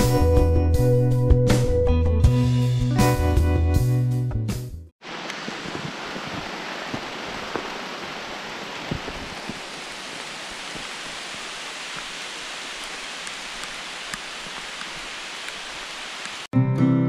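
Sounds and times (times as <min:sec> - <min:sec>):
rain hissing on forest: 0:05.0 - 0:16.5
single raindrop tick: 0:08.8 - 0:16.5.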